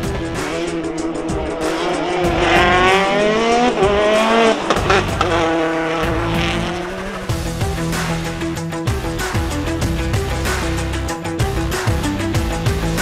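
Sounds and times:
rally car engine revving: 0.0s - 8.6s.

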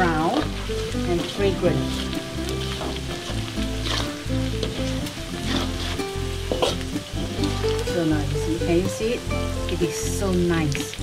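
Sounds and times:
food sizzling in hot oil: 0.0s - 11.0s
metal spatula scraping a pan: 0.3s - 7.8s.

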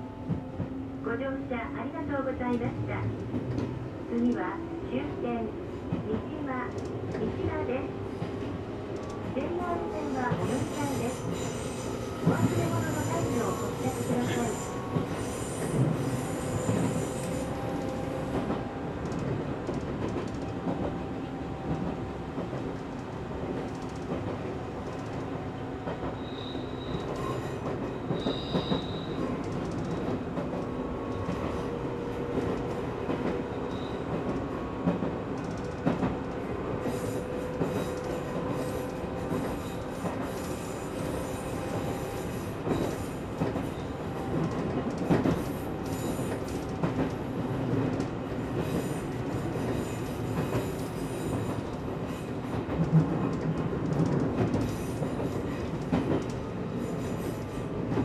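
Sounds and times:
train running on track: 0.0s - 58.0s
high wheel squeal: 28.2s - 29.2s.

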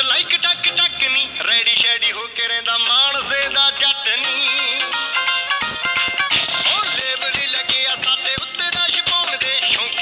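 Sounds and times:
song with drum beat and melody: 4.3s - 10.0s.

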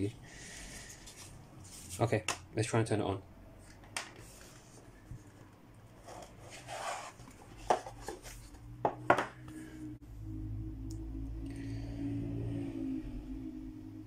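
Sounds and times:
rubbing and sliding on cardboard: 6.0s - 8.5s
low steady tone: 9.4s - 14.0s.

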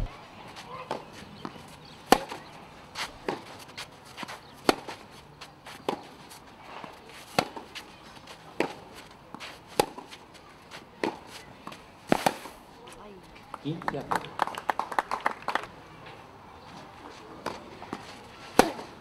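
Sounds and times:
tennis ball struck by rackets: 0.0s - 5.0s, 5.7s - 7.9s, 8.6s - 10.2s, 11.0s - 12.6s, 17.4s - 19.0s
tennis ball bouncing: 0.0s - 10.2s, 17.4s - 19.0s.

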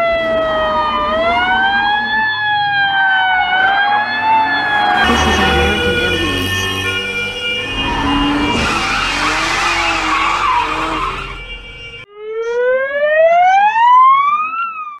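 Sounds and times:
ambulance siren wailing: 0.0s - 15.0s
road and engine noise: 2.8s - 12.1s.

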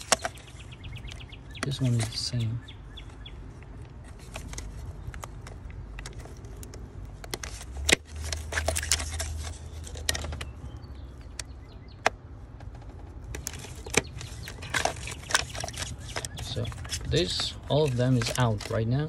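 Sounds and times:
plastic connectors clicking: 11.2s - 19.0s.

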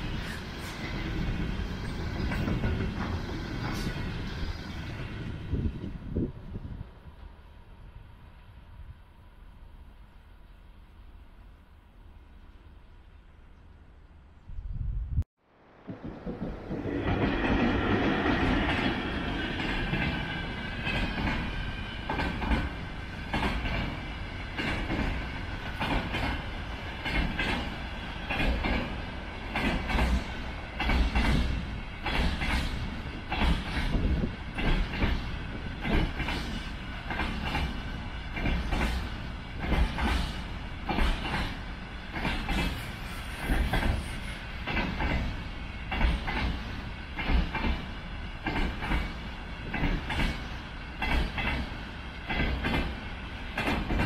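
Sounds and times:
train wheels clacking over rail joints: 0.0s - 4.3s, 15.8s - 54.0s
train rumble: 0.0s - 13.4s, 14.8s - 54.0s.

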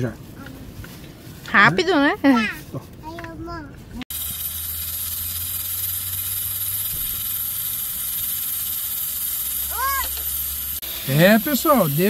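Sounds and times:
pressure cooker hissing: 4.1s - 12.0s.

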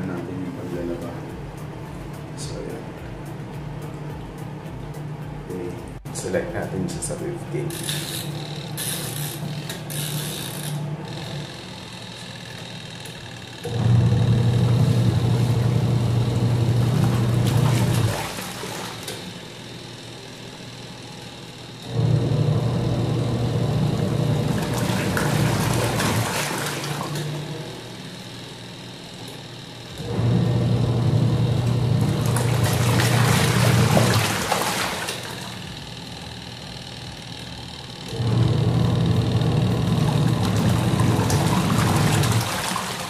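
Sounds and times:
washing machine motor humming: 0.0s - 43.0s
water and clothes churning: 13.7s - 19.4s, 23.9s - 27.5s, 31.6s - 35.9s, 38.1s - 43.0s.

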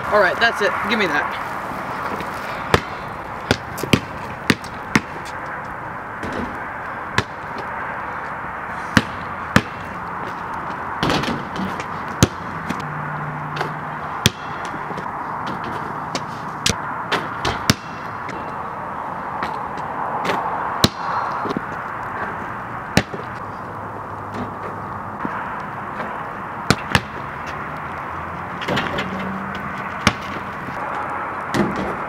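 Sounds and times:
basketball bouncing on concrete: 2.7s - 5.4s, 6.2s - 7.6s, 9.0s - 12.8s, 13.6s - 18.1s, 20.2s - 22.3s, 22.9s - 23.3s, 26.0s - 27.6s, 29.5s - 30.5s
basketball hitting backboard: 11.0s - 12.4s, 13.6s - 14.7s, 17.1s - 18.0s, 26.7s - 27.2s, 30.0s - 30.4s.

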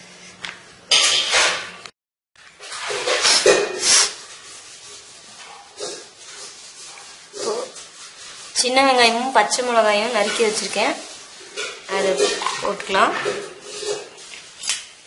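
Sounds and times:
rolling pin on dough: 2.8s - 14.6s.

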